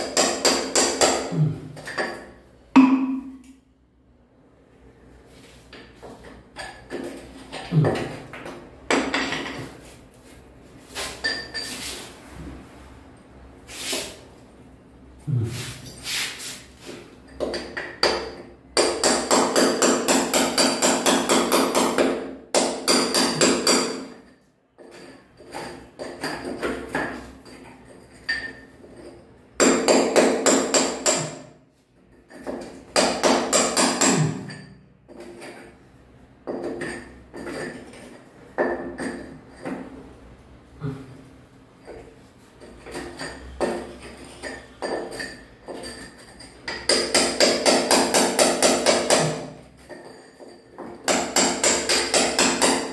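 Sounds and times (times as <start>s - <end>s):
hammer striking chisel into tile: 0.0s - 3.5s, 17.4s - 27.3s, 29.6s - 31.5s, 32.3s - 35.3s, 46.7s - 50.0s, 50.8s - 52.9s.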